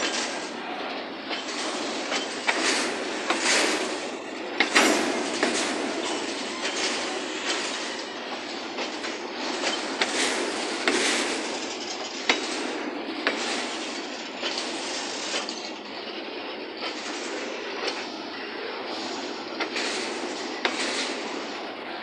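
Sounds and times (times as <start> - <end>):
freight train rumbling past: 0.0 - 22.0.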